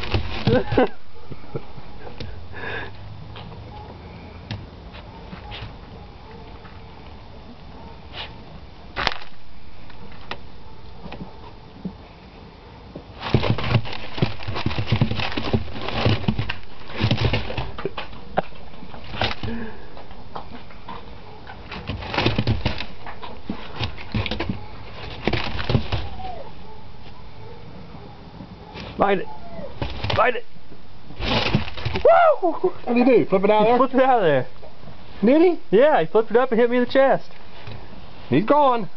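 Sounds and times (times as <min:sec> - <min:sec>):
puppy scrabbling through corn: 0:00.0 - 0:01.0, 0:13.2 - 0:19.8, 0:20.5 - 0:26.6, 0:28.6 - 0:30.4, 0:31.2 - 0:32.1.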